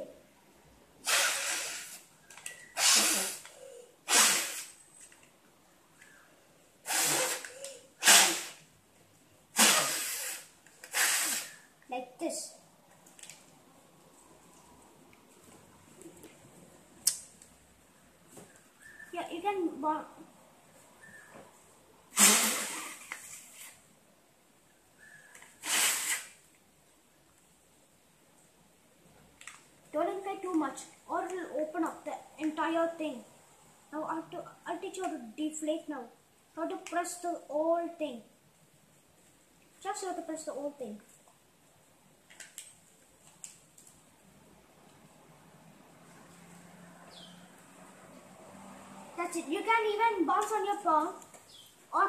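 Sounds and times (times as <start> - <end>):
breath blowing into paper balloon: 1.0 - 2.1, 2.7 - 4.8, 6.8 - 8.7, 9.5 - 11.8, 22.1 - 23.8, 25.5 - 26.5.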